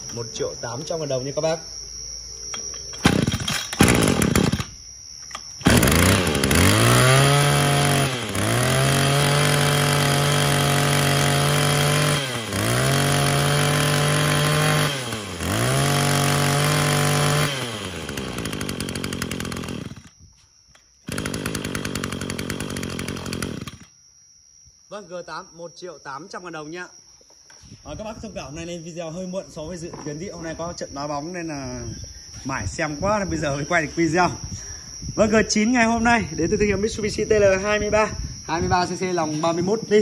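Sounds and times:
two-stroke brush cutter engine: 0:03.0 - 0:04.8, 0:05.6 - 0:20.2, 0:21.0 - 0:23.9
recoil starter pulls: 0:03.0 - 0:20.2, 0:21.1 - 0:23.9.

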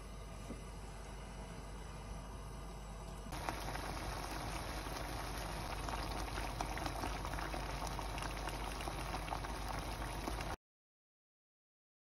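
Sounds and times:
sauce bubbling in a frying pan: 0:03.3 - 0:10.6.

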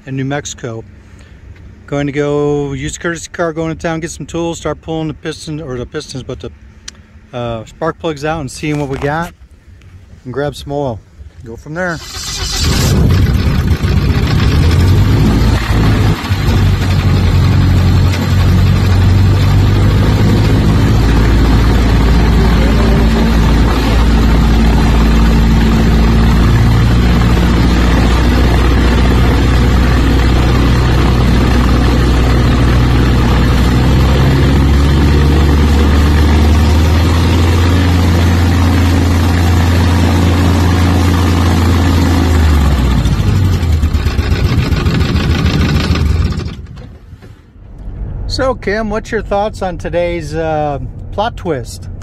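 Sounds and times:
aircraft engine idling: 0:12.0 - 0:47.0.

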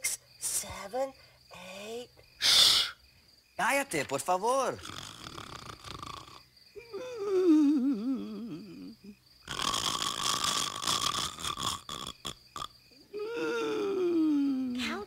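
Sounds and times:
cartoon snoring: 0:04.8 - 0:06.4, 0:07.2 - 0:12.7.

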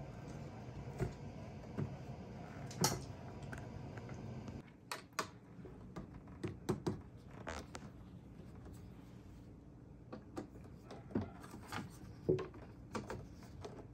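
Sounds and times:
steady low hum: 0:00.0 - 0:04.6.

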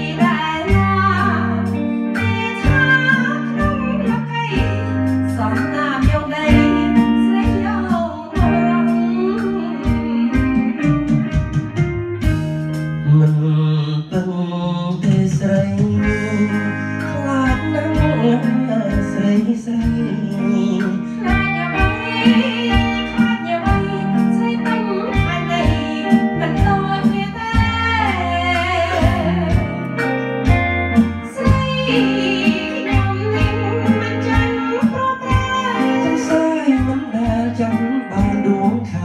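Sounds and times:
woman singing into a microphone: 0:00.0 - 0:10.9, 0:16.0 - 0:30.0, 0:31.0 - 0:39.0
backing track with guitar and beat: 0:00.0 - 0:39.0
man singing into a microphone: 0:13.0 - 0:24.2, 0:31.3 - 0:39.0.

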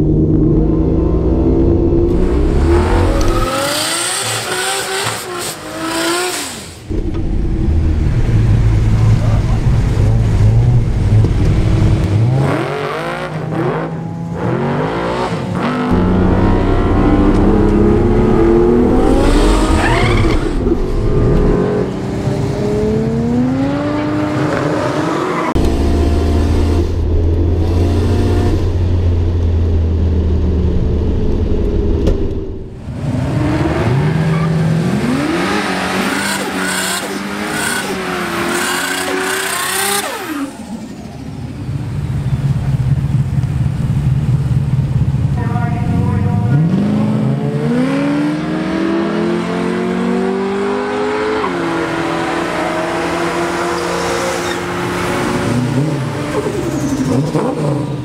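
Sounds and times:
car engine revving through gears: 0:00.0 - 0:40.9, 0:46.5 - 0:58.0
engine revving in a burnout: 0:02.1 - 0:10.8, 0:11.7 - 0:27.0, 0:32.9 - 0:40.8
tyre squeal: 0:19.2 - 0:20.8, 0:53.8 - 0:54.7.

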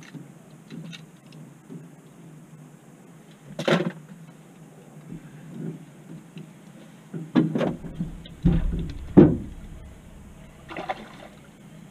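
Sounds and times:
hollow thumps on boat deck: 0:07.2 - 0:11.4.

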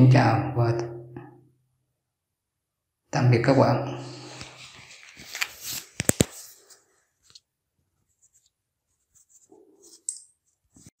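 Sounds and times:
faint handling noise: 0:04.3 - 0:10.9.

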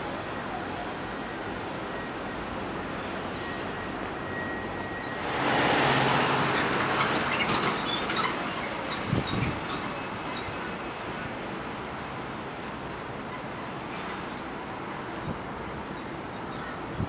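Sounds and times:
street traffic noise: 0:00.0 - 0:17.0
car passing close by: 0:05.1 - 0:07.9.

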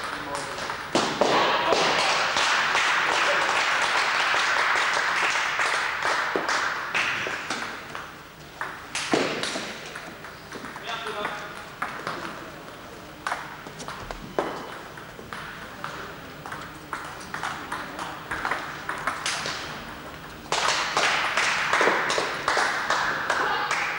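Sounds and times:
people clapping: 0:00.0 - 0:09.6, 0:17.1 - 0:23.9
table tennis balls ticking: 0:07.5 - 0:12.4, 0:13.2 - 0:20.6.

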